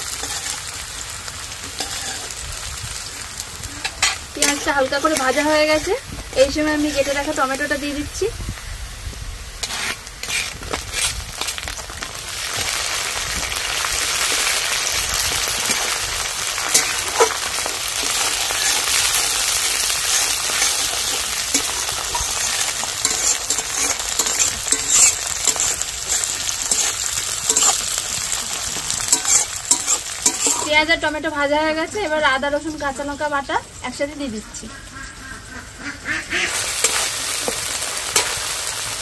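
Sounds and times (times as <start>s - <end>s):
spatula stirring and scraping: 0.0s - 0.8s, 1.7s - 2.4s, 3.9s - 7.4s, 9.6s - 11.7s, 16.6s - 30.8s, 36.8s - 38.4s
vegetables sizzling in hot oil: 0.0s - 39.0s.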